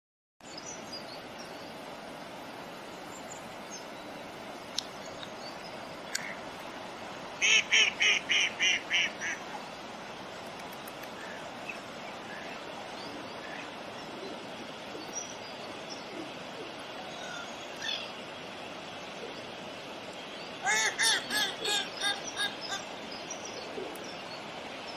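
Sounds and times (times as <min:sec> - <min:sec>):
waterfowl nasal calls: 0:07.4 - 0:09.4.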